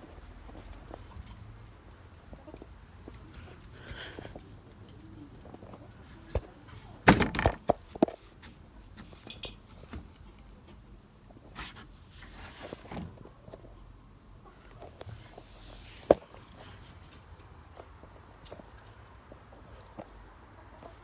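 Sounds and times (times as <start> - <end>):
knocks and rustling: 5.4 - 10.4.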